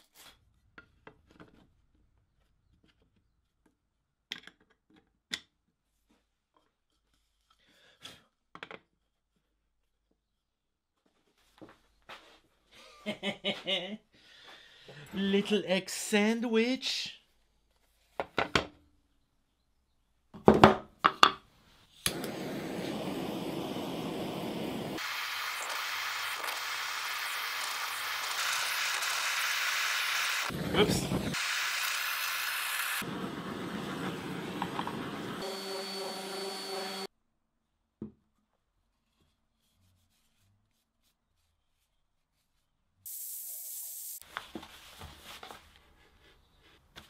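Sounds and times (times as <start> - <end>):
butane torch clicking alight: 22.0 - 30.6, 32.8 - 35.4
torch flame hissing: 22.1 - 37.1.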